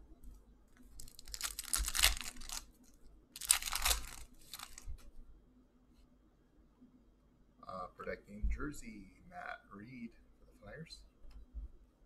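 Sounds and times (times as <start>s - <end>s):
foil wrapper tearing and crinkling: 1.0s - 2.7s, 3.4s - 4.9s.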